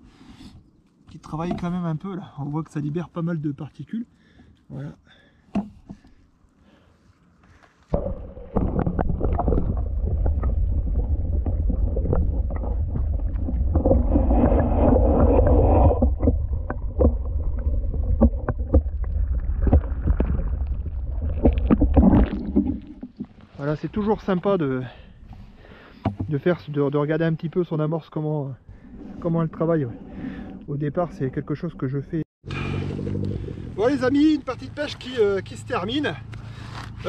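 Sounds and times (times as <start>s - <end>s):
water sloshing and lapping: 5.5s - 23.7s
steady low rumble: 8.0s - 23.8s.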